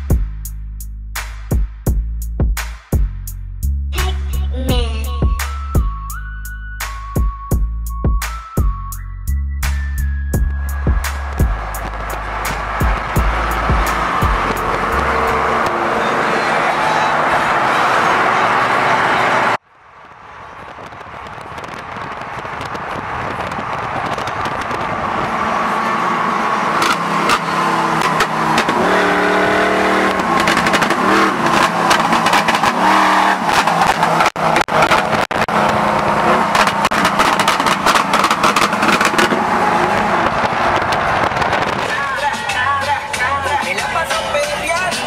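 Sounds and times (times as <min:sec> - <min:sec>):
vehicle engine note rising: 0:09.6 - 0:20.8, 0:23.1 - 0:42.0
freeway traffic noise: 0:09.6 - 0:45.0
rapid crackle: 0:19.7 - 0:26.0, 0:30.1 - 0:42.3.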